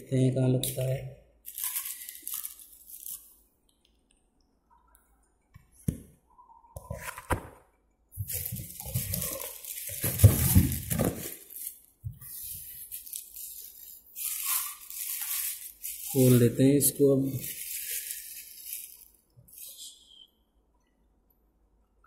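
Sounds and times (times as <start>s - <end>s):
plastic wrap rustling: 0.8s - 3.4s, 8.2s - 19.8s
cardboard box rustling: 8.2s - 11.7s.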